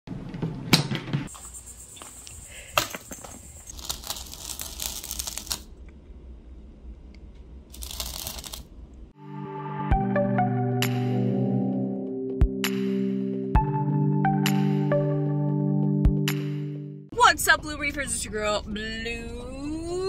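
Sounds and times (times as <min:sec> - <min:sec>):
cardboard rustling: 0:03.1 - 0:05.7, 0:07.8 - 0:08.6.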